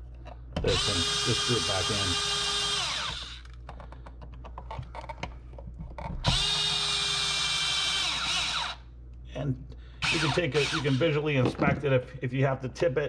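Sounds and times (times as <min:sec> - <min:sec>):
drill motor whine: 0:00.6 - 0:03.6, 0:06.2 - 0:08.8, 0:10.0 - 0:11.2.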